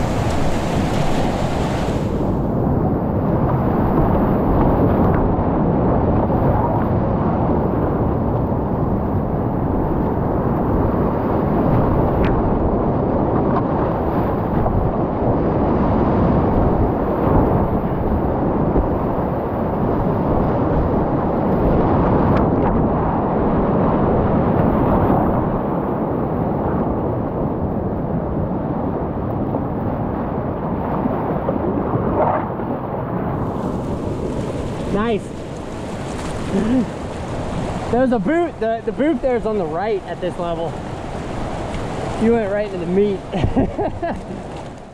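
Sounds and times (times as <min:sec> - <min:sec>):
water splash: 0:00.0 - 0:02.2, 0:33.4 - 0:38.0
rapids rushing water: 0:00.0 - 0:02.3, 0:33.4 - 0:44.9.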